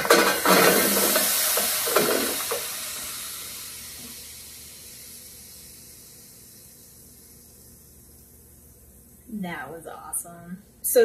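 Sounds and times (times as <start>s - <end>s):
shrimp sizzling in hot oil: 0.0s - 8.3s.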